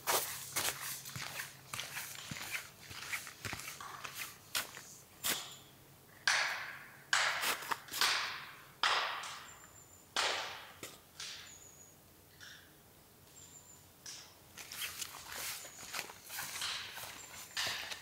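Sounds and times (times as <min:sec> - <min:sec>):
footsteps crunching in snow: 0:00.0 - 0:05.5, 0:14.6 - 0:18.0.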